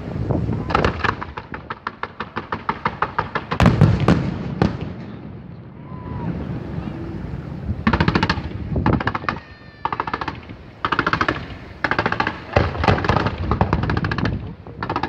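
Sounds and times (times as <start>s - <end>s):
fireworks cracking in rapid salvos: 0.0s - 15.0s.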